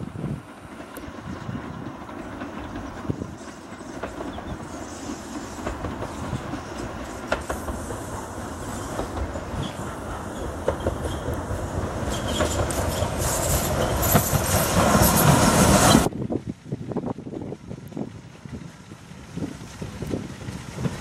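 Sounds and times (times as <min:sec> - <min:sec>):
train wheels clattering over rail joints: 0:00.2 - 0:16.1.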